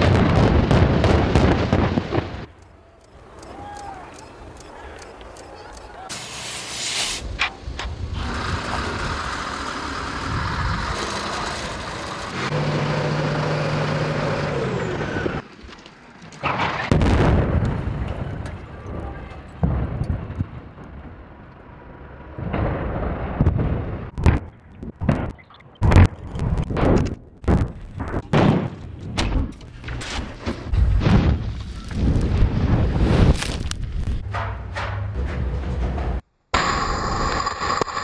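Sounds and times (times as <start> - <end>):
rumbling blast: 0.0 - 2.5, 16.5 - 21.3, 22.3 - 29.5.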